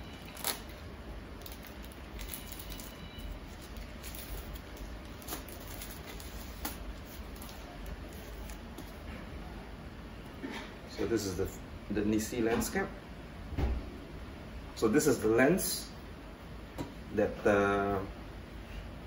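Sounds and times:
plastic bag crinkling: 0:00.0 - 0:09.0
knife slitting plastic bag: 0:00.2 - 0:00.8, 0:01.4 - 0:08.6.

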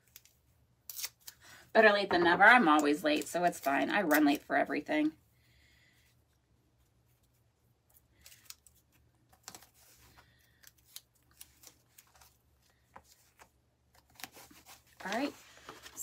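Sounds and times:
tape and fabric rustling: 0:06.8 - 0:16.0.

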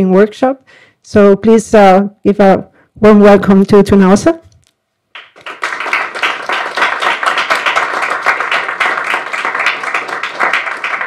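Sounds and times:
audience applauding: 0:05.2 - 0:11.0.

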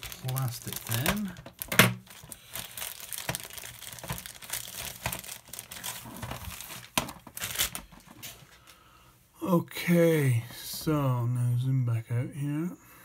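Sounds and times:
plastic packaging crinkling: 0:00.0 - 0:08.7.

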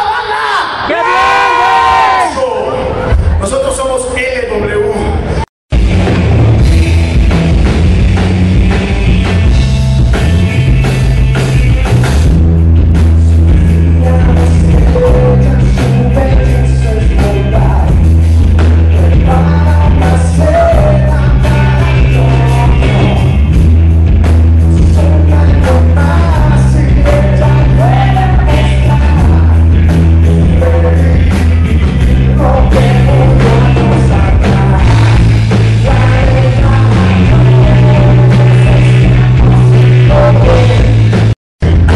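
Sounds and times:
live rock band playing: 0:05.7 - 0:41.9
man singing: 0:13.5 - 0:18.1, 0:18.8 - 0:23.4, 0:24.8 - 0:41.2.

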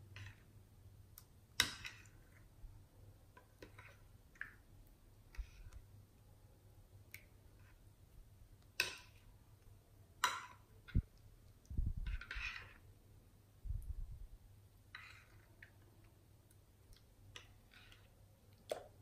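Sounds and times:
slime stirred with metal stick: 0:03.4 - 0:05.9, 0:10.3 - 0:12.9, 0:14.9 - 0:19.0.

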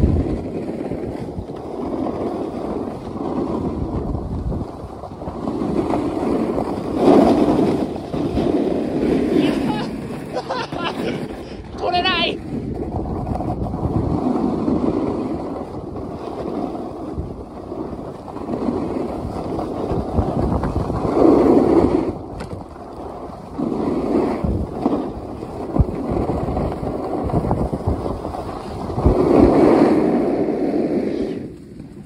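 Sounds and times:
snowboard scraping over snow: 0:00.0 - 0:32.0
wind buffeting microphone: 0:00.0 - 0:32.0.

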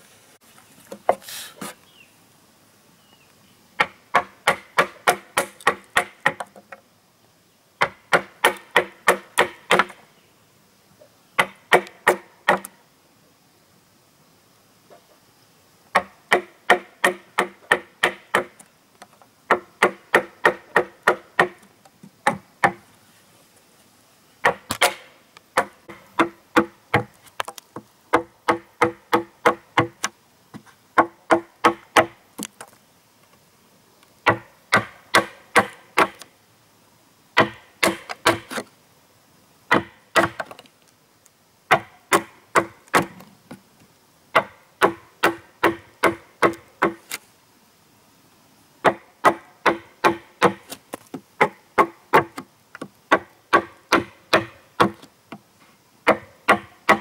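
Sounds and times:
hand tool striking wood: 0:03.8 - 0:06.8, 0:07.8 - 0:10.0, 0:11.4 - 0:12.7, 0:16.0 - 0:18.6, 0:19.5 - 0:21.6, 0:22.2 - 0:22.8, 0:24.4 - 0:30.1, 0:31.0 - 0:32.7, 0:34.3 - 0:36.2, 0:37.4 - 0:38.6, 0:39.7 - 0:40.6, 0:41.7 - 0:43.6, 0:44.4 - 0:47.2, 0:48.8 - 0:55.4, 0:56.1 - 0:57.0.

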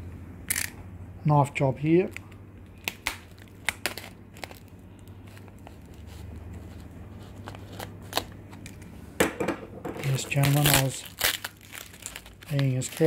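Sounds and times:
low steady hum: 0:00.0 - 0:13.0
knife cutting plastic wrap: 0:10.0 - 0:13.0.

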